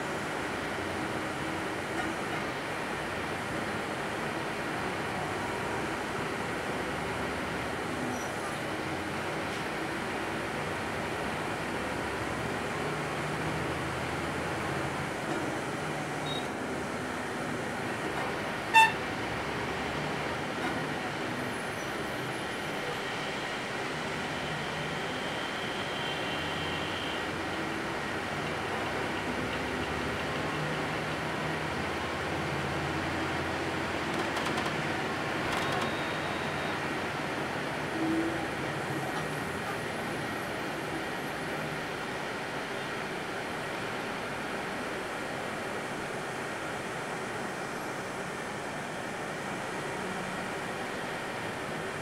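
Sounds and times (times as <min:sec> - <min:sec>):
road traffic and engines: 0:00.0 - 0:52.0
brief tone: 0:16.2 - 0:16.5, 0:25.1 - 0:27.2, 0:35.6 - 0:36.8
car horn beep: 0:18.7 - 0:19.0, 0:35.8 - 0:36.8.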